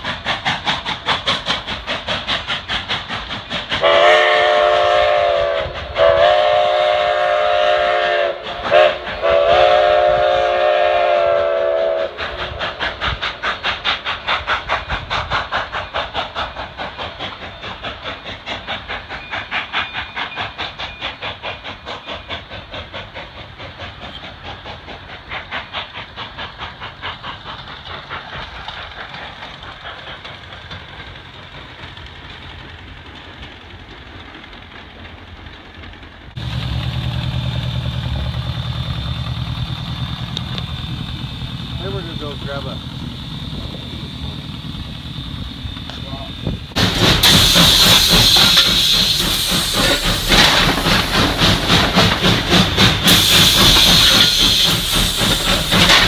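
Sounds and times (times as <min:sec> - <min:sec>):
steam locomotive chuffing: 0:00.0 - 0:56.0
steam whistle blasts: 0:03.8 - 0:12.2.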